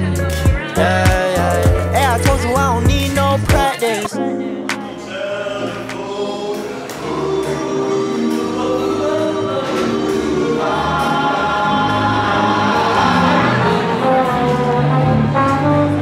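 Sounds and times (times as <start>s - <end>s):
gospel choir singing: 4.8s - 16.0s.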